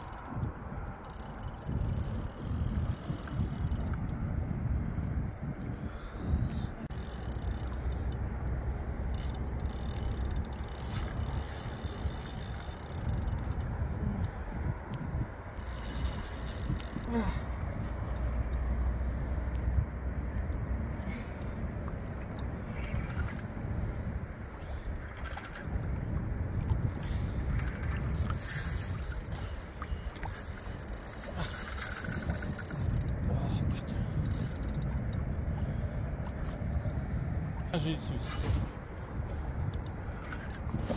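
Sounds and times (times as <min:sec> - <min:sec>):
fishing reel ratcheting clicks: 0:00.0 - 0:04.1, 0:06.9 - 0:08.2, 0:09.1 - 0:14.4, 0:15.6 - 0:17.1, 0:22.4 - 0:23.5, 0:24.8 - 0:25.7, 0:27.4 - 0:29.4, 0:30.2 - 0:33.3, 0:34.2 - 0:35.2
low wind rumble: 0:00.0 - 0:40.9.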